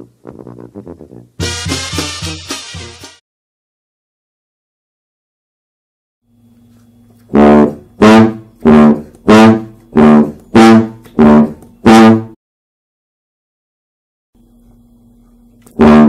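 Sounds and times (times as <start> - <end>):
sousaphone bass line: 0.0 - 3.2, 7.3 - 12.4, 15.7 - 16.0.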